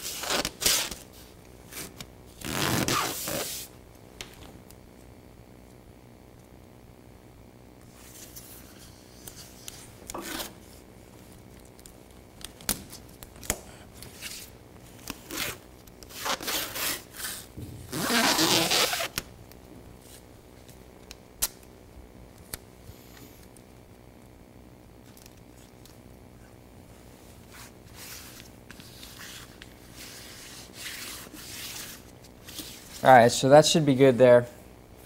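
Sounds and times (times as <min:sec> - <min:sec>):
masking tape ripping off roll: 0:00.0 - 0:03.7, 0:09.1 - 0:10.8, 0:11.6 - 0:19.3
tape rubbed down: 0:00.0 - 0:03.7, 0:08.0 - 0:10.8, 0:14.0 - 0:19.3, 0:27.4 - 0:33.1.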